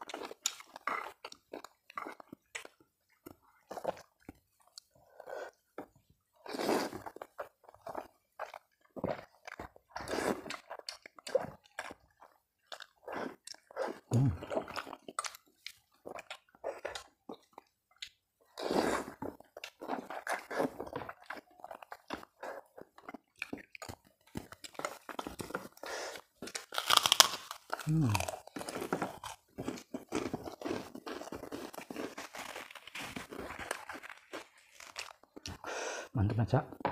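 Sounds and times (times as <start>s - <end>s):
wet chewing with mouth clicks: 0.0s - 35.7s
slurping noodles: 18.6s - 19.3s.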